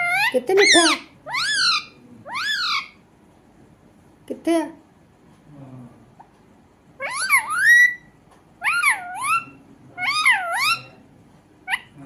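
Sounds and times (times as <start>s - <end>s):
parakeet calls: 0.0s - 3.0s, 7.0s - 11.0s, 11.6s - 12.0s.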